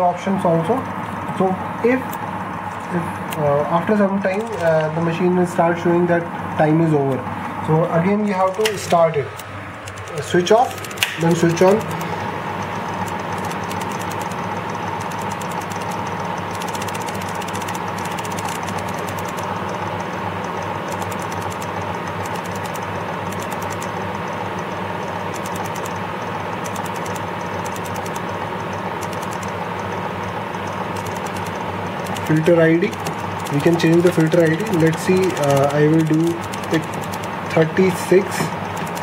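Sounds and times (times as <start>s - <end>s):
air pump humming and rattling: 0.0s - 39.0s.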